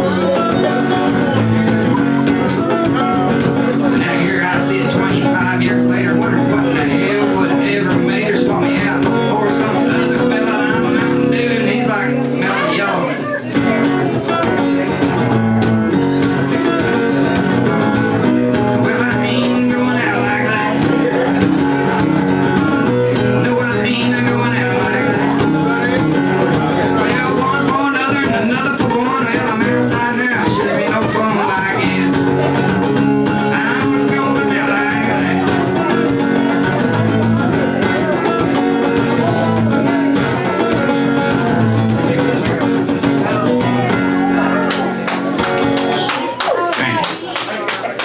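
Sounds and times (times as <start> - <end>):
acoustic guitar strumming: 0.0 - 47.1
man singing into a microphone: 2.7 - 15.0, 18.5 - 22.0, 22.8 - 44.6.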